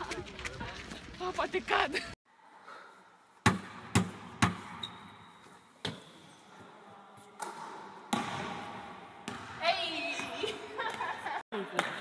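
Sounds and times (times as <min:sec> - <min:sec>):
basketball bouncing on hardwood floor: 0:03.4 - 0:04.8.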